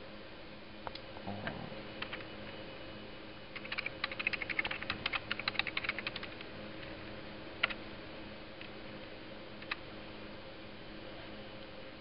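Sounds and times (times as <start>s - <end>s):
faint steady hum: 0.0s - 12.0s
typing on computer keyboard: 3.6s - 6.4s.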